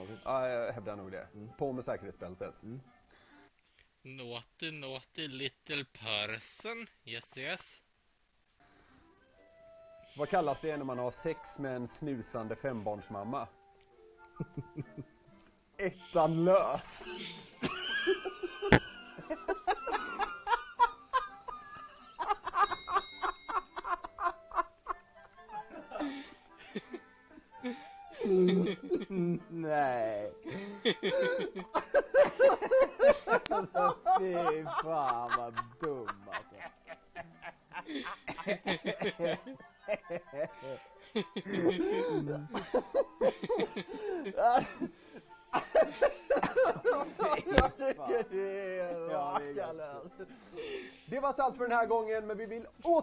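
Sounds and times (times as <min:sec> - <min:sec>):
men laughing heartily: 0:14.4 - 0:15.2, 0:17.0 - 0:29.6, 0:30.4 - 0:51.0.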